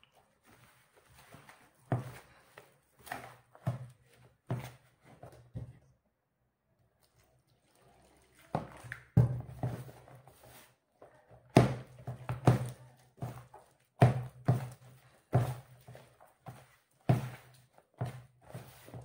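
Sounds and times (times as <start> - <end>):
dull thumps of dough: 11.4 - 19.0.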